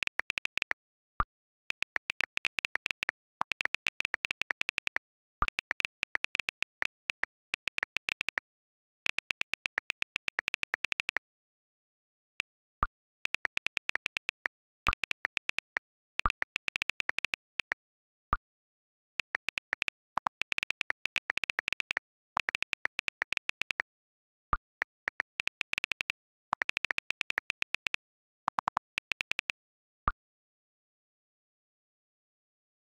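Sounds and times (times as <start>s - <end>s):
phone keyboard clicks: 0.0s - 0.8s, 1.7s - 8.4s, 9.1s - 11.2s, 13.2s - 17.8s, 19.2s - 23.9s, 24.6s - 29.6s.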